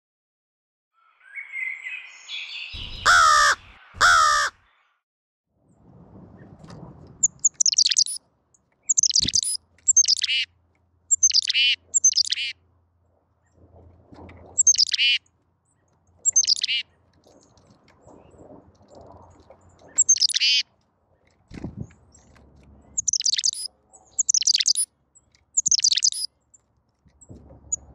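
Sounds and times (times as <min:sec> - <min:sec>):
chickadee calling: 0:01.0 - 0:04.6, 0:07.2 - 0:08.2, 0:08.9 - 0:10.5, 0:11.1 - 0:12.5, 0:14.6 - 0:15.2, 0:16.2 - 0:16.9, 0:20.0 - 0:20.6, 0:23.0 - 0:24.9, 0:25.6 - 0:26.3
loud drawn-out pitched calls: 0:02.8 - 0:04.7.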